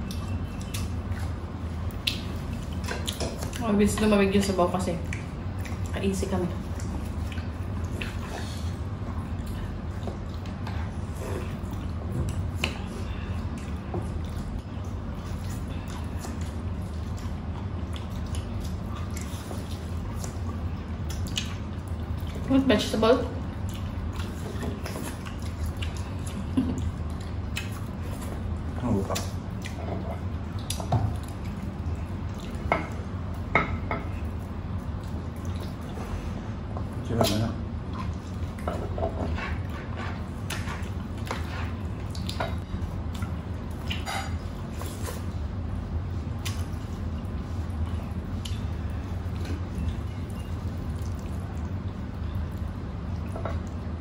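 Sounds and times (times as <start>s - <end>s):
steady low hum: 0.0s - 54.0s
wet chewing and smacking: 0.0s - 54.0s
dishes and bones clinking on plates: 32.4s - 34.3s, 43.8s - 44.5s.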